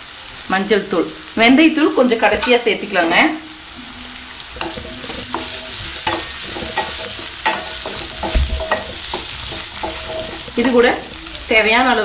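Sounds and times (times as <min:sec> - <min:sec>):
food frying in oil: 0:00.0 - 0:12.0
wooden spatula scraping pan: 0:04.5 - 0:11.2.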